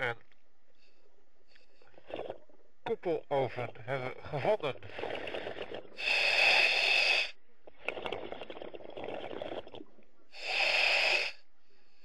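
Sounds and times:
exhaled bubbles crackling: 1.8 - 6.8, 7.6 - 10.1
hissing regulator inhalation: 4.9 - 9.6, 10.4 - 11.4.

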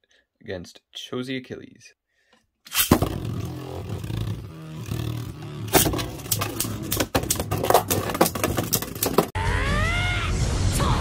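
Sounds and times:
spinning tops whirring: 2.7 - 9.4
plastic clacks of colliding tops: 5.7 - 9.3.

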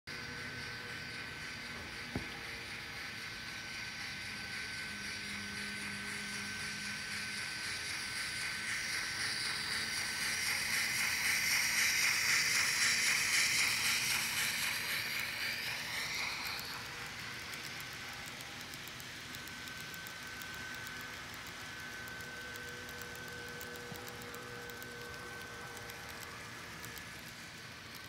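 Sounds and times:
model steam locomotive chuffs: 0.1 - 28.0
model train running noise: 0.1 - 28.0.

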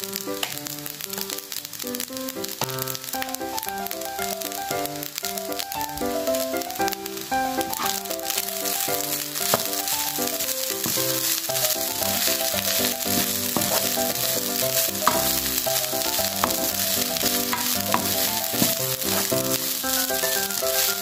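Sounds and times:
rice sizzling in oil: 0.0 - 21.0
light background music: 3.2 - 21.0
wooden spoon knocking pan: 7.6 - 21.0.

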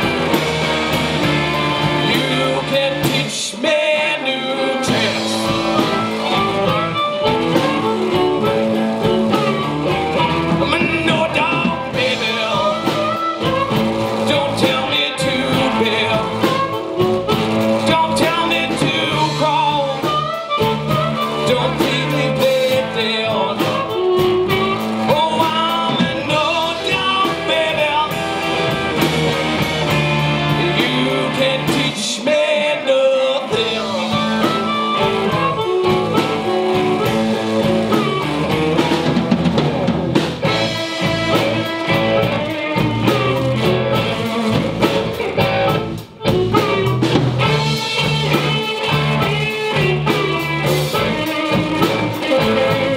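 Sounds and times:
drums: 0.0 - 52.9
electric guitars: 0.0 - 52.9
male vocal singing: 1.6 - 6.7, 10.2 - 13.6, 14.2 - 16.8, 17.8 - 28.8, 30.2 - 37.2.

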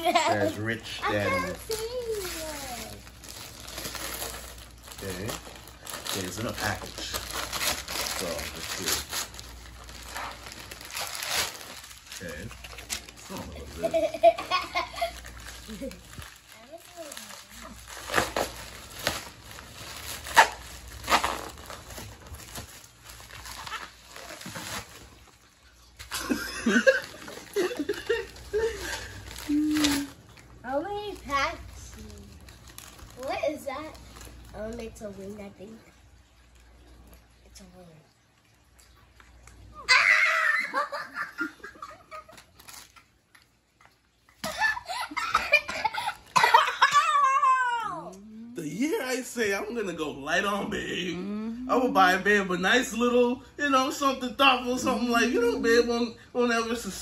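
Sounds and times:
package envelope crinkling: 1.3 - 13.8, 14.8 - 25.5, 31.1 - 33.3, 41.8 - 43.5
excited wordless exclamations: 39.8 - 41.0, 46.7 - 48.6.

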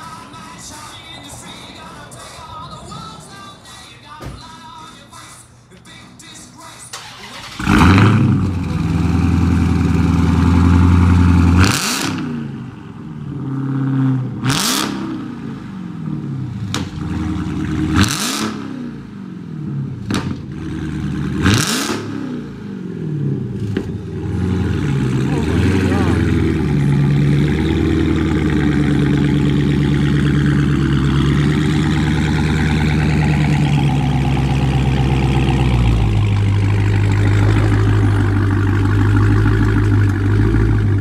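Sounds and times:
car engine idling and revving: 7.0 - 41.0
exhaust pops: 16.7 - 18.2, 25.0 - 41.0.

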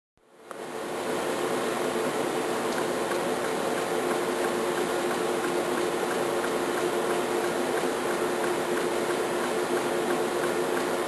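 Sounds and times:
machine hum: 0.2 - 11.0
faint laser pulse ticks: 2.7 - 10.9.

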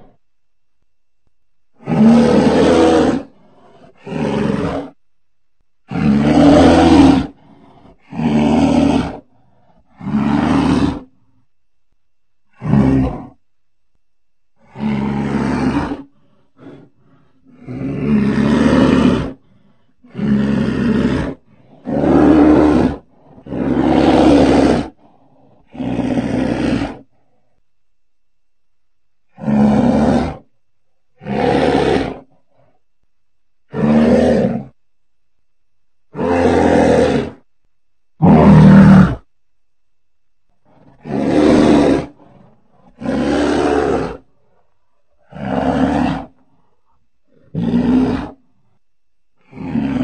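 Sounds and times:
animal roars: 1.8 - 5.0, 5.9 - 11.4, 12.5 - 13.4, 14.6 - 27.6, 29.3 - 30.5, 31.2 - 32.8, 33.7 - 34.8, 36.1 - 37.5, 38.2 - 39.3, 40.6 - 48.8, 49.4 - 50.0.

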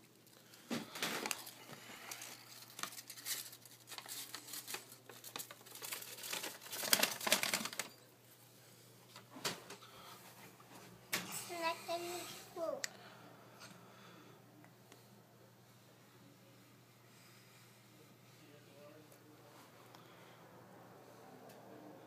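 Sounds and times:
paper bag crinkling: 0.2 - 8.1.

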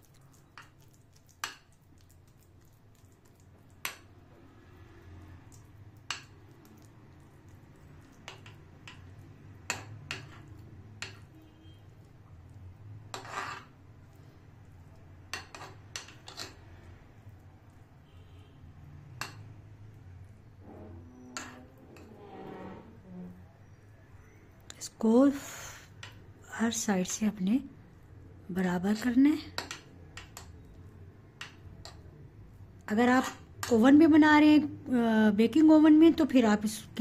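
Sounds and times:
spoon scraping dish: 8.0 - 11.5, 13.1 - 13.8, 15.3 - 16.6, 20.6 - 23.0.

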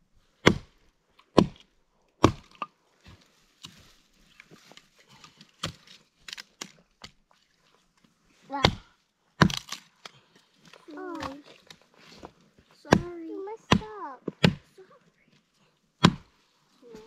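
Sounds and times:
axe chopping log: 0.4 - 2.7, 5.6 - 7.2, 8.5 - 9.9, 10.9 - 11.4, 12.9 - 14.7, 16.0 - 16.3.

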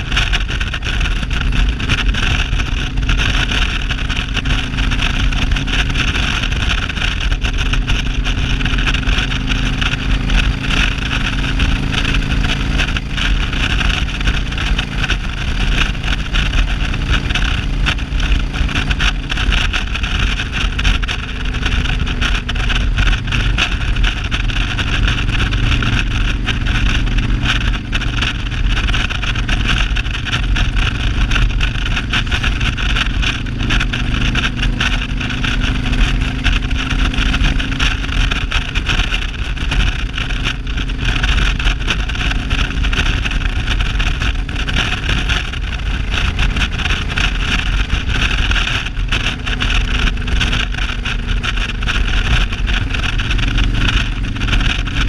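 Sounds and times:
motorcycle engine cruising: 0.0 - 55.0
wind and road rush: 0.0 - 55.0.

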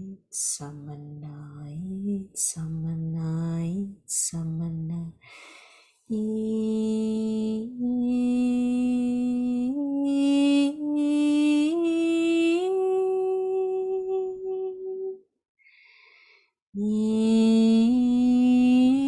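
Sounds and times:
woman breathing in: 5.2 - 6.1, 15.6 - 16.6
woman singing a held tone: 6.1 - 15.2, 16.8 - 19.0.

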